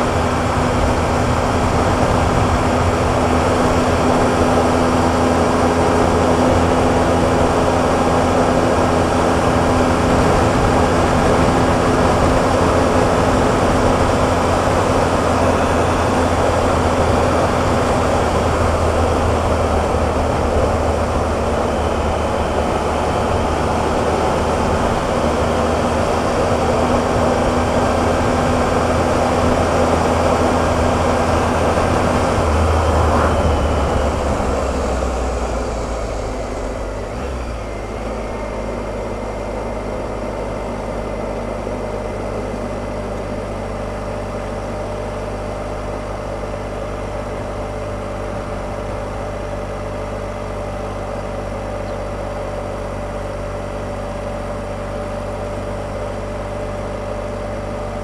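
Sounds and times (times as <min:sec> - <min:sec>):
wind noise: 0:00.0 - 0:37.2
motorcycle engine at speed: 0:00.0 - 0:58.0.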